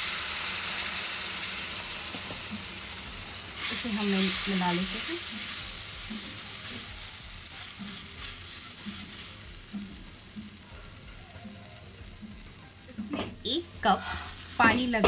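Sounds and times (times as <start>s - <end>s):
water sizzling in a skillet: 0.0s - 15.0s
spatula stirring in a pan: 3.5s - 15.0s.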